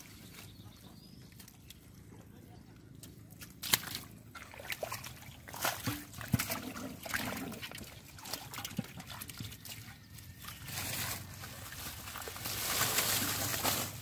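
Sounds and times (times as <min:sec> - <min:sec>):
muddy water sloshing: 0:00.0 - 0:14.0
wet slaps and clicks: 0:03.0 - 0:04.1.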